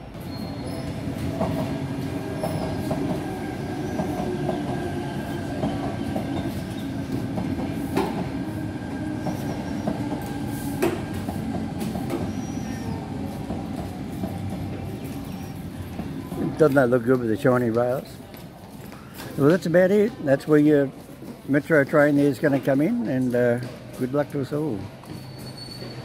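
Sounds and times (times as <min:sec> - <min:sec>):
train wheels rumbling on rails: 0:00.0 - 0:18.8.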